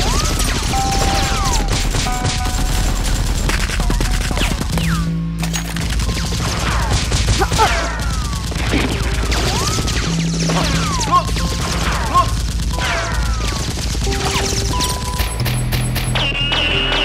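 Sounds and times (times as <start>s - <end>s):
background music: 0.0s - 17.0s
rapid gunfire: 0.0s - 17.0s
whistling sweeps: 16.1s - 17.0s.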